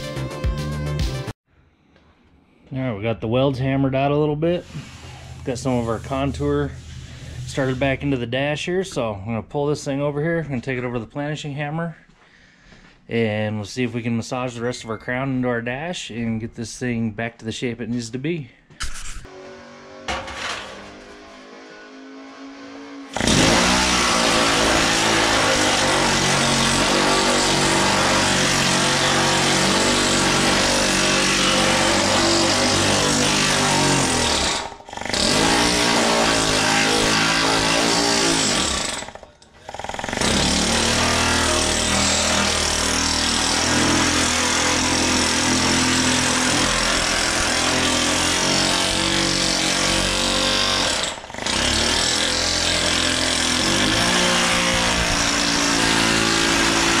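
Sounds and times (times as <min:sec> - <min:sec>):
pneumatic hammer on steel: 0:18.8 - 0:21.8.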